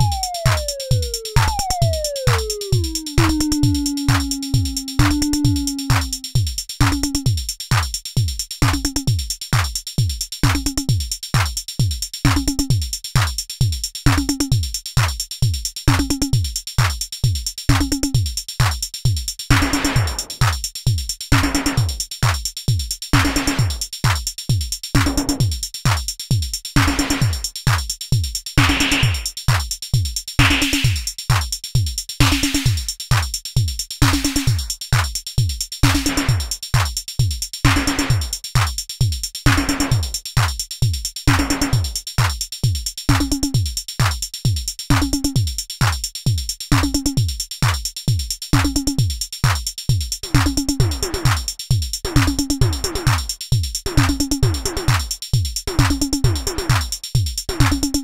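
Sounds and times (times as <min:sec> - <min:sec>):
pitched synth drum tone: 0:00.0 - 0:07.2
kick drum beat: 0:00.0 - 0:58.0.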